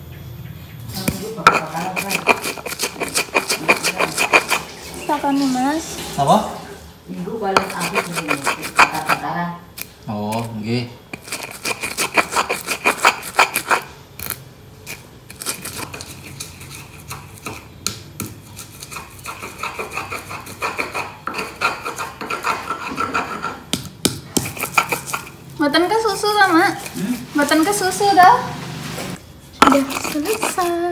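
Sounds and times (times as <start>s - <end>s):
stone pestle grinding in mortar: 1.1s - 5.3s, 7.5s - 9.4s, 11.1s - 28.0s, 29.6s - 30.9s.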